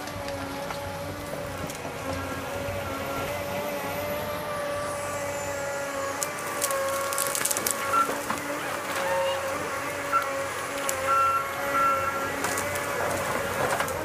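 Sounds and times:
diesel harvester running with whine: 0:00.0 - 0:14.0
tree cracking and snapping: 0:06.1 - 0:11.6, 0:12.2 - 0:14.0.

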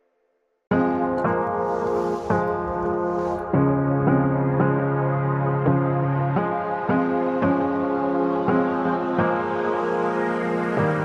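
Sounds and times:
calm ambient instrumental music: 0:00.7 - 0:11.0.

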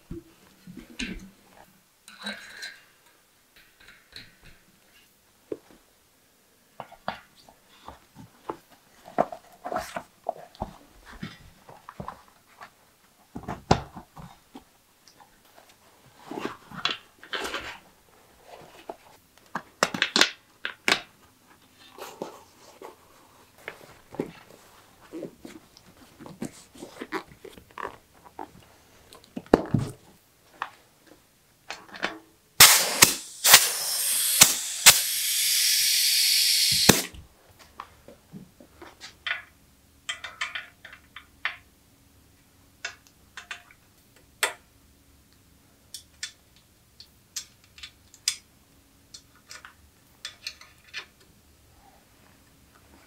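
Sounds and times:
air hissing into tyre: 0:32.6 - 0:37.1
sharp tyre pops: 0:32.6 - 0:37.1.

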